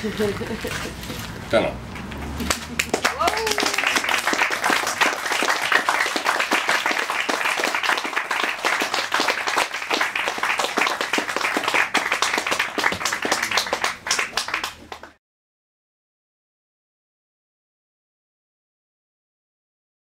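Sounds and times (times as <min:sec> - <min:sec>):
audience applauding: 0:01.9 - 0:15.2.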